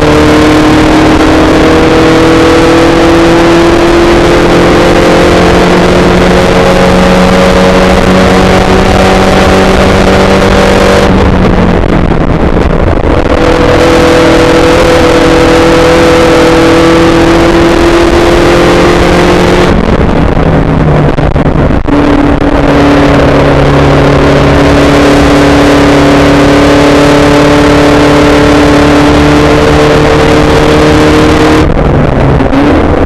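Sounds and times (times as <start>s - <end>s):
race car engine running hard: 0.0s - 33.0s
wind and road noise: 0.0s - 33.0s.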